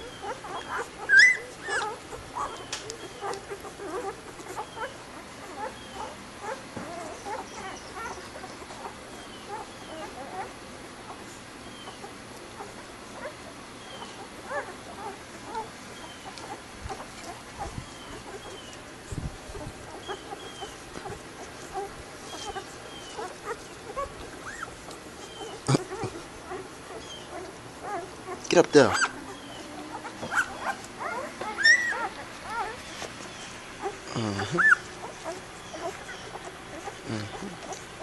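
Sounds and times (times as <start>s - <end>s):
puppies squeaking and whimpering: 0.0s - 38.0s.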